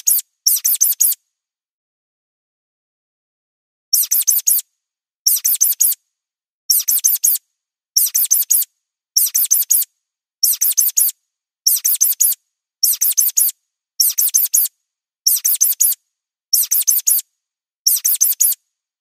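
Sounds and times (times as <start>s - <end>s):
mouse squeaks: 0.0s - 1.2s, 3.9s - 4.6s, 5.3s - 6.0s, 6.7s - 7.4s, 8.0s - 14.7s, 15.3s - 17.2s, 17.9s - 18.6s.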